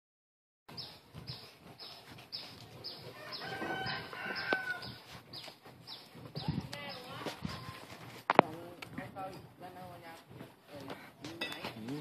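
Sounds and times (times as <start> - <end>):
rooster crowing: 3.1 - 5.0.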